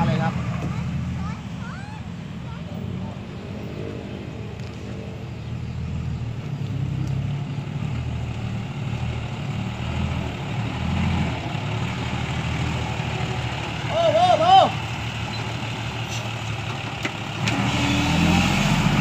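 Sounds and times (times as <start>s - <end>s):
diesel truck engine under load: 4.6s - 19.0s.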